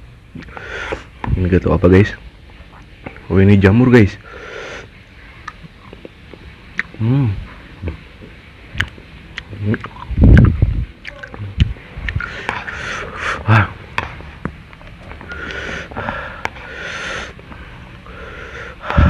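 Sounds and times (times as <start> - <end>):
noisy sniffing breaths: 0.4 - 1.2, 4.2 - 5.3, 12.1 - 13.6, 15.2 - 19.0
wet chewing clicks: 5.4 - 7.0, 7.8 - 12.7.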